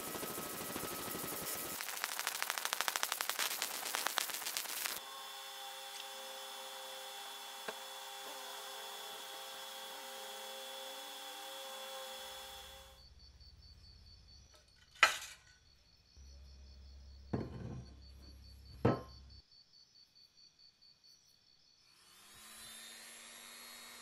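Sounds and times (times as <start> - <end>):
laser crackling buzz: 0.0 - 5.0
laser hiss with faint hum: 0.0 - 5.0.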